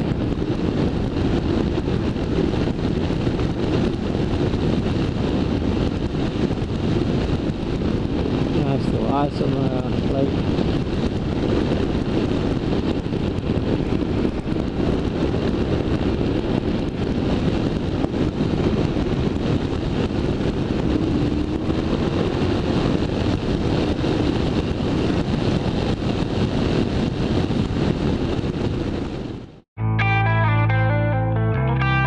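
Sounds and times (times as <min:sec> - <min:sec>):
wind buffeting microphone: 0:00.0 - 0:29.6
motorcycle engine running: 0:10.0 - 0:27.0.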